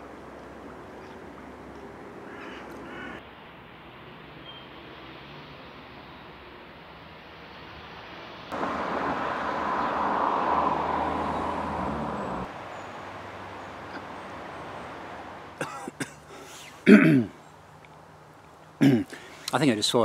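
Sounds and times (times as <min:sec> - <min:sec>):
rushing outdoor noise: 0:00.0 - 0:20.0
man coughing: 0:15.6 - 0:17.4, 0:18.8 - 0:19.2.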